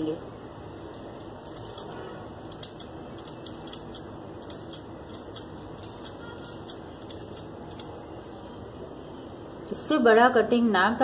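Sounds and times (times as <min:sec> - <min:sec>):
shears snipping fabric: 0:01.4 - 0:01.9, 0:02.5 - 0:08.0.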